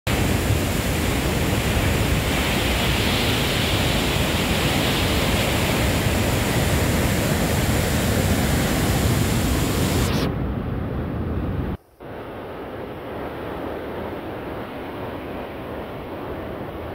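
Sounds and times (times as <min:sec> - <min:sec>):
river rushing over rapids: 0:00.1 - 0:10.3.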